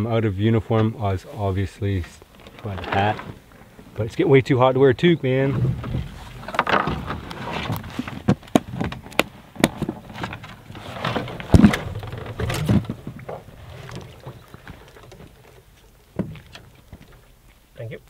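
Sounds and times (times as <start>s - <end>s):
gear knocking and thudding: 5.4s - 13.5s.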